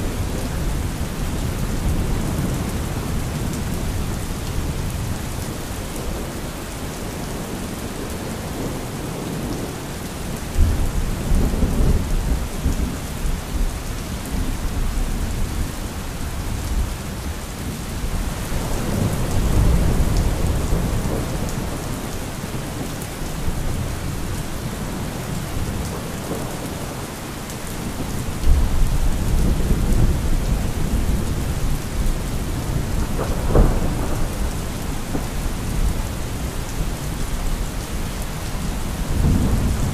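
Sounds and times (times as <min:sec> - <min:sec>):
steady rain: 0:00.0 - 0:39.9
rolling thunder: 0:28.4 - 0:39.9.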